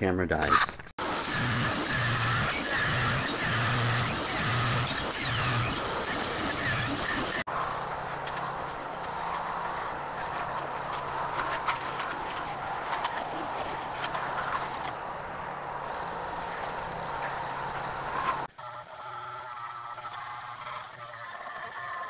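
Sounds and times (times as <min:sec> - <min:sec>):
sander motor humming: 0:01.0 - 0:22.0.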